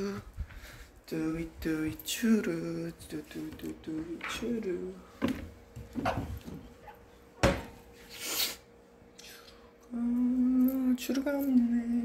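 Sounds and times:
cupboard knocks and bumps: 7.4 - 7.8.

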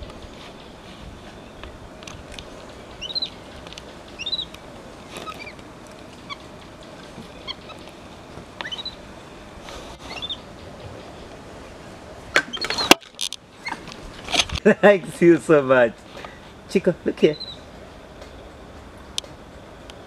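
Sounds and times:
steady background hiss: 0.0 - 20.0
high-pitched chirping calls: 2.9 - 5.6, 8.6 - 9.0, 10.0 - 10.5, 17.3 - 17.6.

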